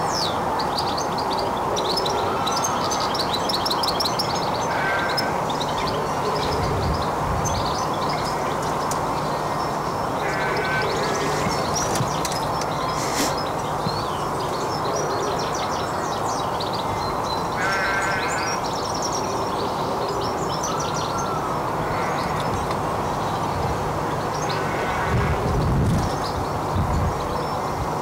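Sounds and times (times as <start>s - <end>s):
small birds chirping and singing: 0.0s - 28.0s
steady background hum: 3.9s - 28.0s
harsh bird call: 10.2s - 12.2s, 17.6s - 18.7s.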